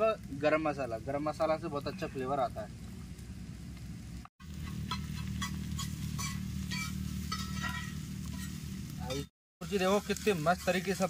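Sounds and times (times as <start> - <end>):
eggs sizzling in oil: 0.0 - 11.0
spatula scraping pan: 4.6 - 9.2, 10.2 - 11.0.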